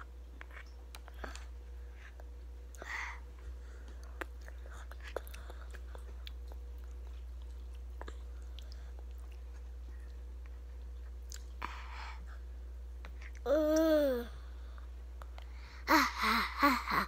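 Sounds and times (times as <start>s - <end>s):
child eating with lip smacks: 0.0s - 14.0s, 14.7s - 15.7s
steady low hum: 0.0s - 17.0s.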